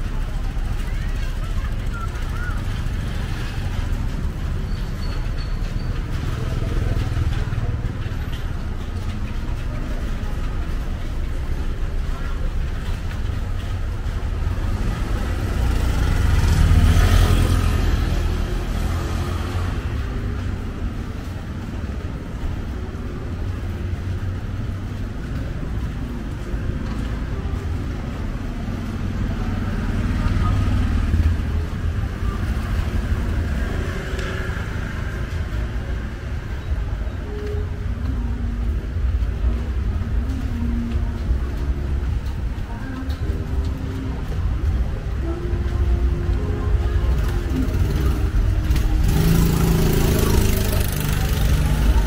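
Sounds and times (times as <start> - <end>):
street traffic rumble: 0.0 - 52.0
motor scooter passing: 14.0 - 22.4, 43.0 - 52.0.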